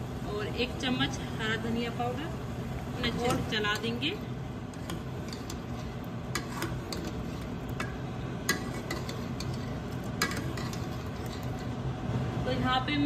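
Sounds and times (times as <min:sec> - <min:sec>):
low steady hum: 0:00.0 - 0:13.0
ladle scraping a metal pot: 0:04.6 - 0:11.8.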